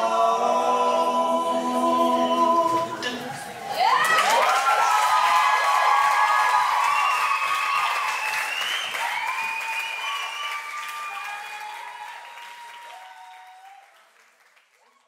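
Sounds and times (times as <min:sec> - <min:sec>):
audience applauding: 0:02.6 - 0:15.0
people cheering and whooping: 0:02.8 - 0:14.1, 0:14.8 - 0:15.0.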